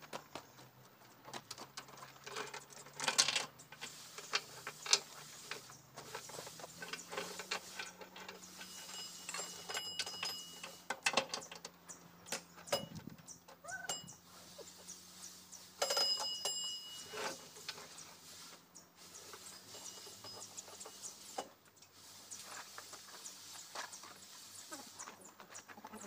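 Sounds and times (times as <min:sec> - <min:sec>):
steel chain clinking and rattling: 0:01.2 - 0:18.0, 0:19.2 - 0:21.5.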